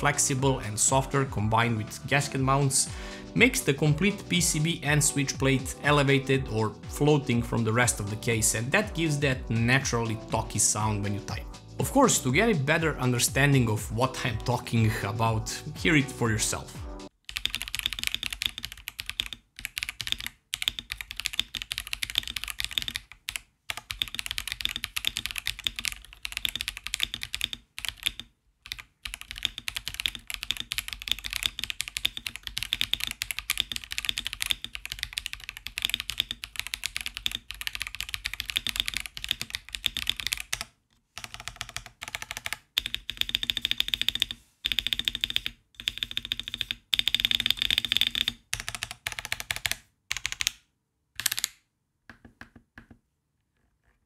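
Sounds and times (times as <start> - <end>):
typing on mechanical keyboard: 17.3 - 50.6, 51.2 - 51.6.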